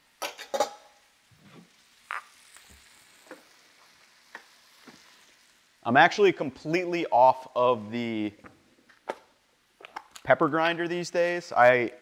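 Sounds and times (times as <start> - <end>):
steaks frying in a pan: 0.0 - 11.9
kitchenware clicks and knocks: 0.2 - 0.9.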